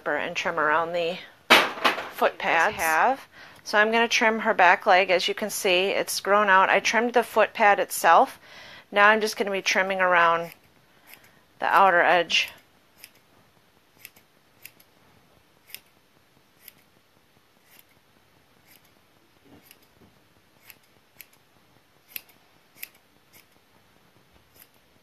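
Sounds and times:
shears snipping hair: 9.2 - 13.3, 13.9 - 15.0, 15.6 - 17.0, 17.6 - 20.0, 20.6 - 23.7, 24.4 - 25.0.

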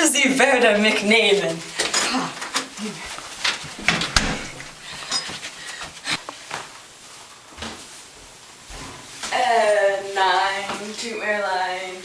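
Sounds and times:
low room noise: 0.0 - 12.0
short knocks and clicks: 3.8 - 4.8.

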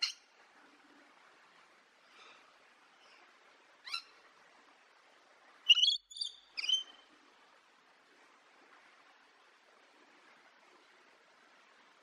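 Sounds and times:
faint bird twittering: 5.7 - 7.0.

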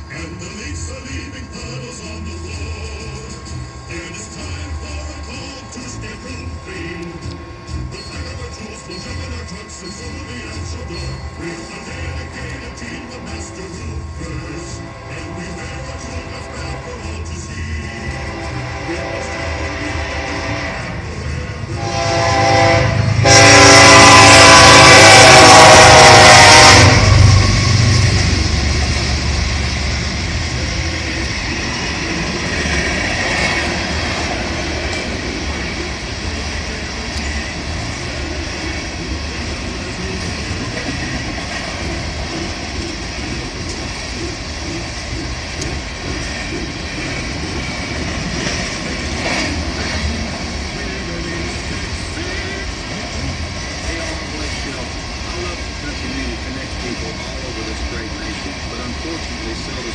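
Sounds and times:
train cars rumbling and clacking: 0.0 - 59.9
train horn blast: 14.7 - 16.9, 17.9 - 21.0, 21.7 - 28.6.

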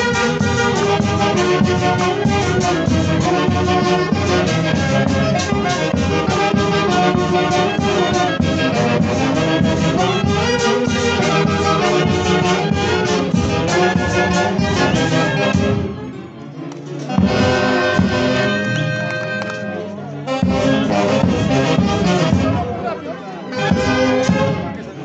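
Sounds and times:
festival band playing dance tune: 0.0 - 16.1, 17.0 - 25.0.

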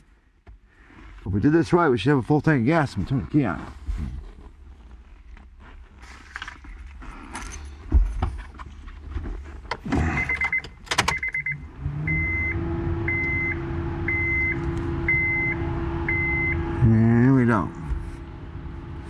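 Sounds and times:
keys rattling in ignition: 6.0 - 8.8
car warning chime beeps: 10.1 - 17.0
steady hum: 11.6 - 19.0.

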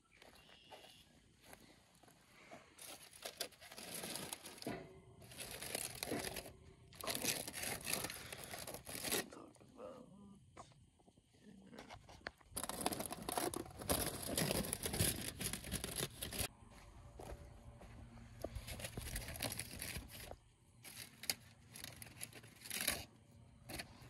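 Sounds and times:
rustling and crackling handling: 1.4 - 9.3, 11.7 - 16.5, 18.4 - 24.0
aluminum foil crinkling: 2.8 - 9.4, 12.2 - 16.5, 18.6 - 24.0.

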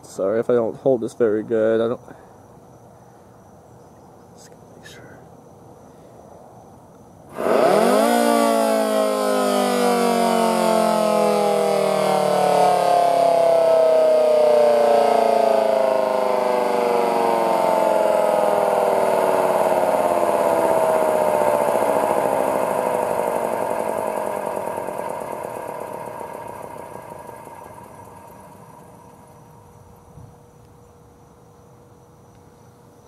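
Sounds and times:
siren winding down: 7.3 - 29.5.

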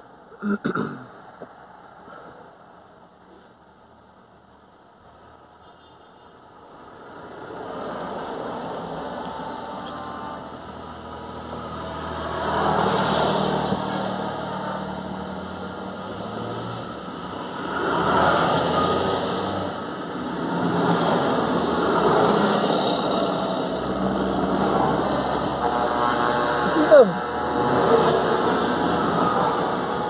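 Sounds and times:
tractor diesel engines passing: 6.6 - 30.0.

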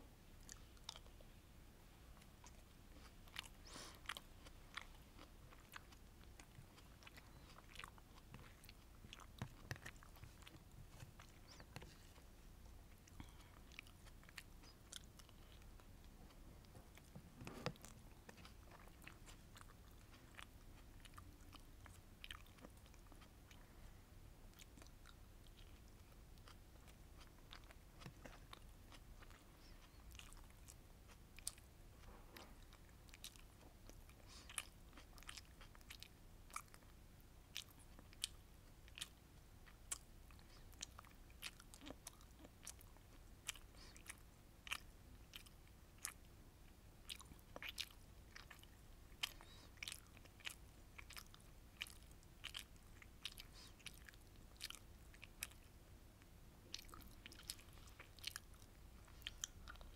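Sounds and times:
chewing and mouth sounds: 0.4 - 1.3, 2.1 - 23.8, 24.5 - 59.9.

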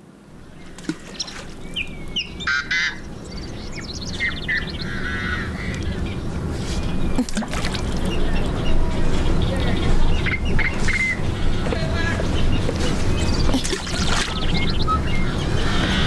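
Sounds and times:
waterfowl honking: 2.2 - 3.1.

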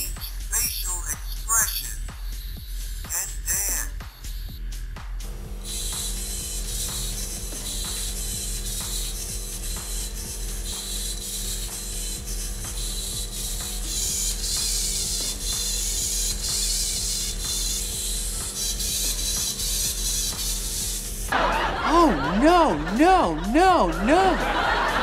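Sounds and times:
servo motors whirring: 5.6 - 21.3.

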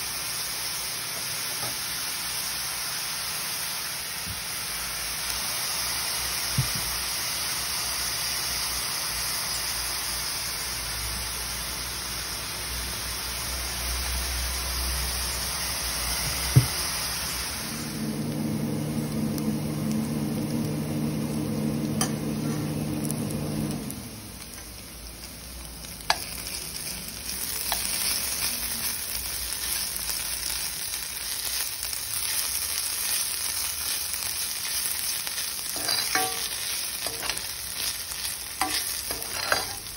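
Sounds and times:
onions sizzling in oil: 0.0 - 39.9
steady hum: 16.2 - 27.7.

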